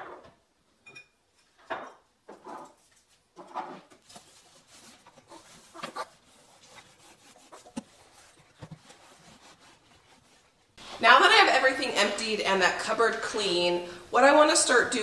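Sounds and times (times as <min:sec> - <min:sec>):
cloth rubbing wooden shelf: 0:03.7 - 0:11.2.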